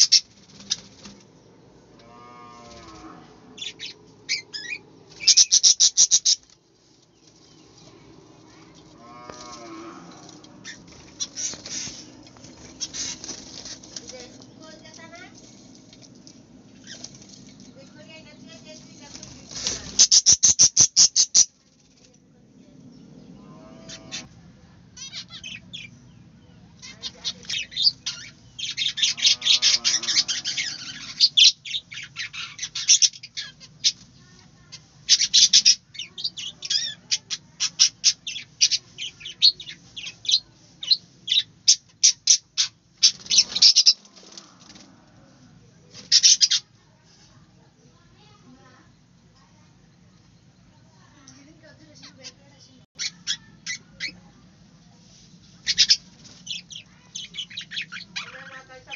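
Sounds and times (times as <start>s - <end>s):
budgerigars chirping: 0.0s - 0.8s, 3.6s - 6.4s, 19.9s - 21.5s, 26.8s - 34.0s, 35.1s - 44.0s, 46.1s - 46.7s, 55.6s - 58.9s.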